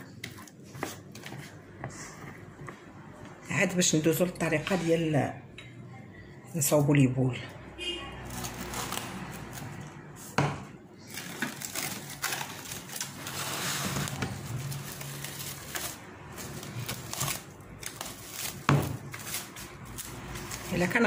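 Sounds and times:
cling film crinkling: 11.0s - 21.0s.

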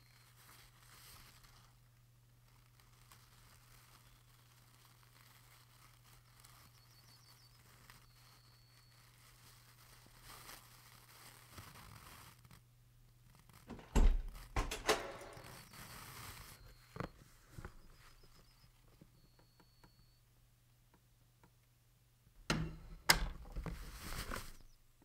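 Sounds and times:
door knob and latch clunking: 13.7s - 15.6s.

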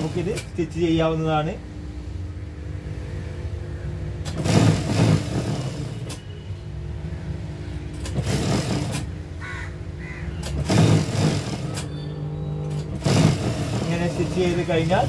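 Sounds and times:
sewing machine stitching: 0.0s - 0.5s, 4.2s - 6.2s, 7.9s - 9.2s, 10.4s - 12.0s, 12.6s - 15.0s
low motor hum: 0.0s - 15.0s.

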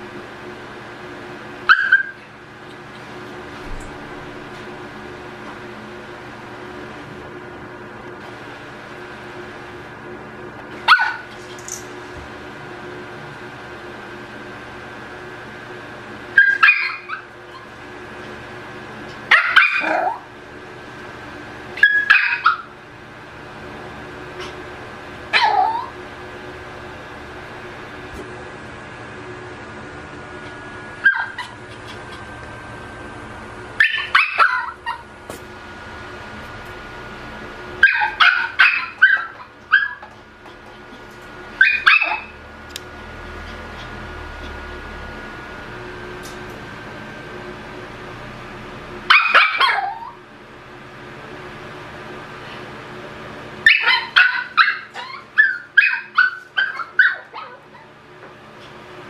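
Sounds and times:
puppy yipping: 1.7s - 2.3s, 10.9s - 11.4s, 16.4s - 17.7s, 19.3s - 20.2s, 21.8s - 22.7s, 25.3s - 26.0s, 31.0s - 32.2s, 33.8s - 35.1s, 37.8s - 40.2s, 41.6s - 42.4s, 49.1s - 50.2s, 53.6s - 57.9s.

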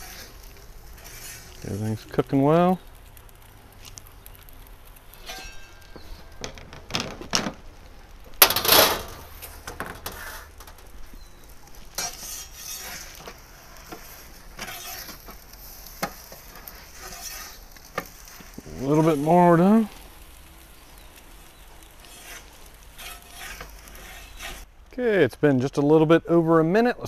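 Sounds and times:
metal peel scraping stone: 0.0s - 2.1s, 5.0s - 7.4s, 8.4s - 10.9s, 11.9s - 19.6s, 21.9s - 24.7s.

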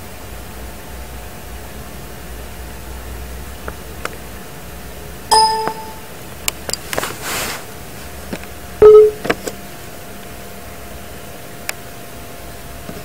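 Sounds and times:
ringing dings: 5.3s - 6.0s, 8.8s - 9.2s.

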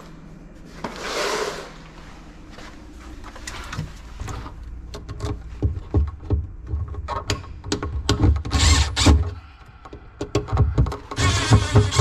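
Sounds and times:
handling clicks and thumps: 4.9s - 9.3s
cordless driver running: 8.6s - 9.2s, 11.1s - 12.0s.

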